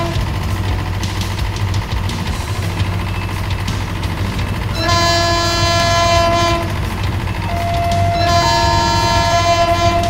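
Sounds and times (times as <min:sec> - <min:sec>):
steady low hum: 0:00.0 - 0:10.0
train horn chord blasts: 0:04.8 - 0:06.8, 0:07.5 - 0:10.0
two-tone warning signal: 0:07.4 - 0:10.0.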